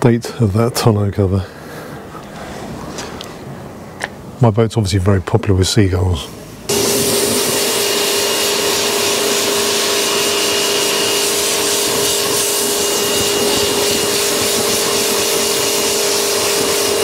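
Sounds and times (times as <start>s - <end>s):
pressure washer spraying: 6.7s - 17.0s.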